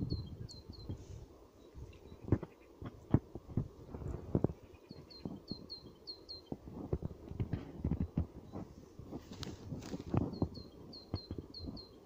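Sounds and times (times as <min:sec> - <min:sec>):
small bird chirping: 0:00.0 - 0:02.8, 0:04.5 - 0:06.6, 0:07.8 - 0:12.0
footsteps on dry grass: 0:06.6 - 0:10.6.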